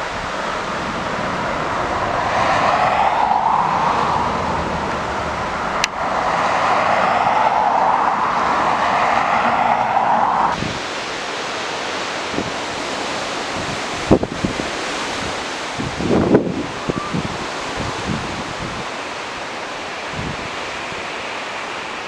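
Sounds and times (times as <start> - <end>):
wind on microphone: 0.0 - 11.1, 12.2 - 19.0, 20.1 - 20.6
jet engines roaring: 0.0 - 14.8.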